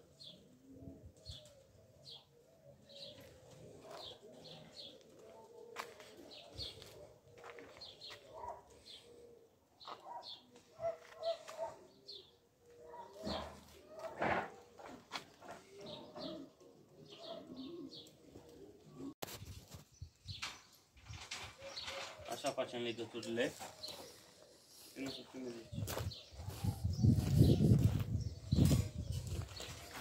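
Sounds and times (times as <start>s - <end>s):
dove cooing: 0.0s - 19.2s, 21.1s - 22.8s
small birds chirping: 1.2s - 14.0s, 14.8s - 18.2s, 18.8s - 30.0s.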